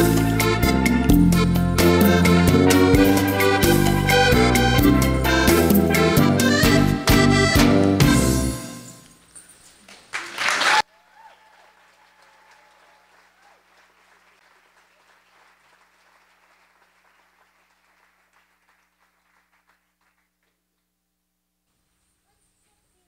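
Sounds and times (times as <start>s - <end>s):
audience applauding: 9.9s - 20.6s.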